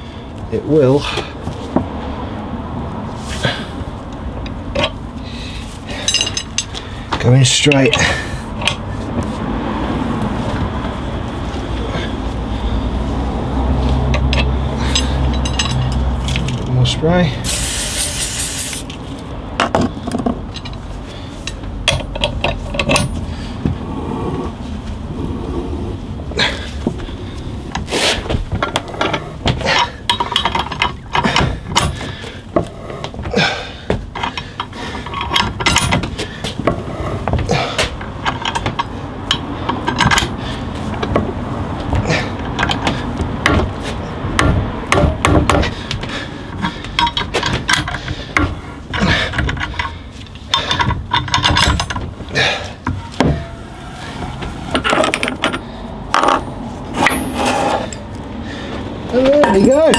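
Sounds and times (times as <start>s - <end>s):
steel tools clinking: 5.9s - 6.8s, 14.2s - 16.5s, 56.2s - 58.1s, 59.2s - 59.9s.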